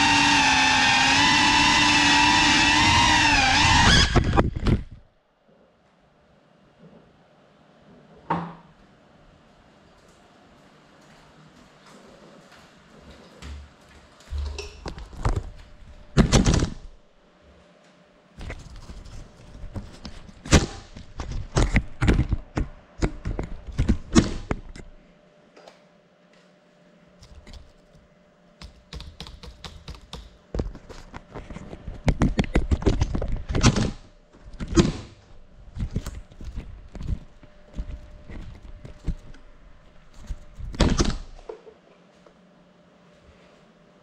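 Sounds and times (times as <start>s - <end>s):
sharp clicks and knocks: 28.6s - 31.4s.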